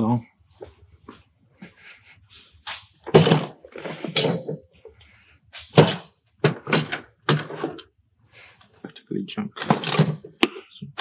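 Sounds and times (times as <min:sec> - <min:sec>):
tools clunking and rattling: 0:03.0 - 0:05.0, 0:05.6 - 0:07.9, 0:09.5 - 0:10.6.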